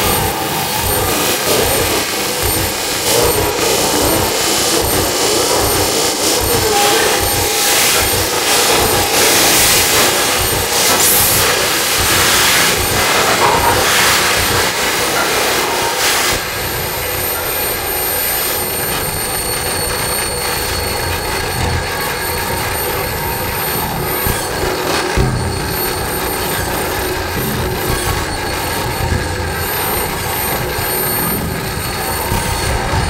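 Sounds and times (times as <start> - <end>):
grinding electronic noise music: 0.0 - 33.0
thin high steady whines: 0.0 - 33.0.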